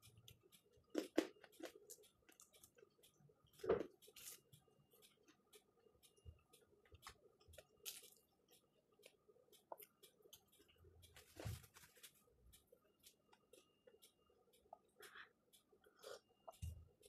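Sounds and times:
handling rustles: 11.2 - 12.2.

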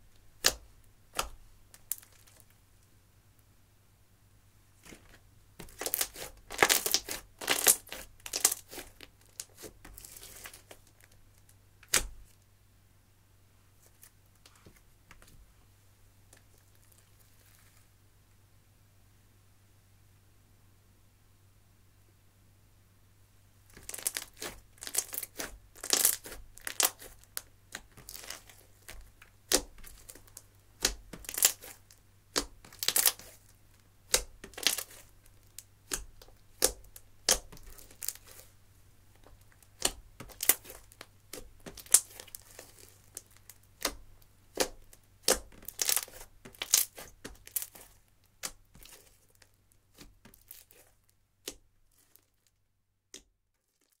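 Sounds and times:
slime crackling and popping: 0.4 - 2.5, 5.6 - 12.3, 23.7 - 38.5, 39.1 - 52.5.

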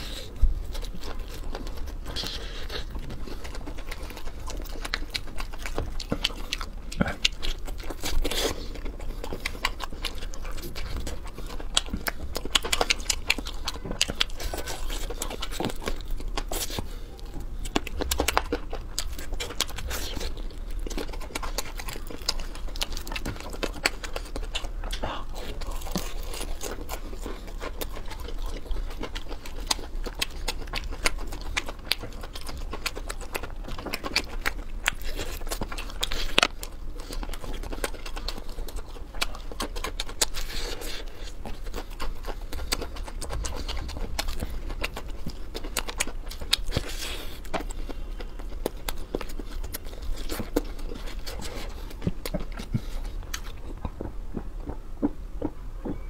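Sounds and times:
chewing crispy fried chicken: 0.0 - 56.0.

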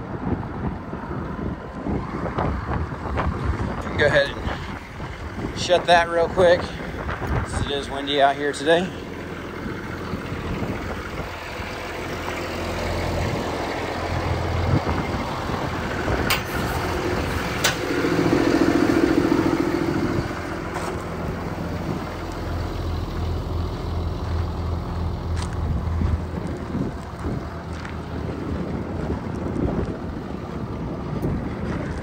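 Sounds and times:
wind on microphone: 0.0 - 8.0, 14.2 - 20.6, 25.5 - 32.0
diesel engine running: 0.0 - 32.0.

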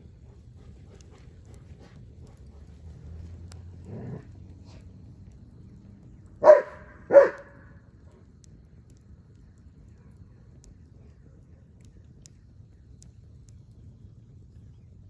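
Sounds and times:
dog barking: 6.4 - 7.6.

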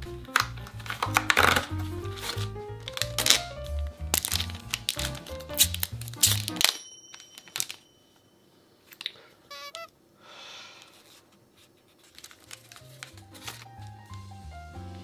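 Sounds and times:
background music: 0.0 - 6.9, 12.9 - 15.0
plastic wrapping crinkling and tearing: 0.2 - 6.8, 7.4 - 7.8, 11.8 - 14.1
packaging rustling: 0.2 - 7.8, 10.9 - 14.1
short chirping tone: 9.5 - 9.9.

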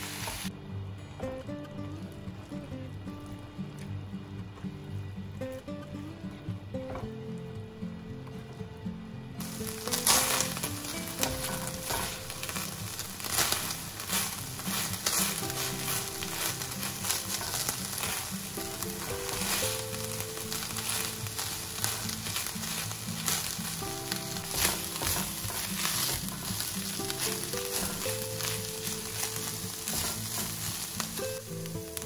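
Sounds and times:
meat sizzling in a frying pan: 0.0 - 0.5, 9.4 - 32.0
light background music: 0.0 - 32.0
spatula scraping pan: 9.4 - 31.7.

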